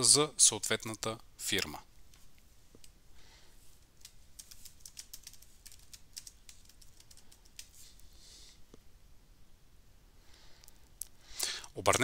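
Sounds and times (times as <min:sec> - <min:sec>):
keyboard typing: 0:04.0 - 0:07.8.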